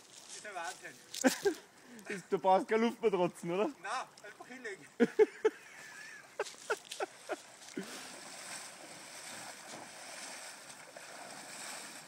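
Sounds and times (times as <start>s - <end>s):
water splashing around wading legs: 5.9s - 12.0s.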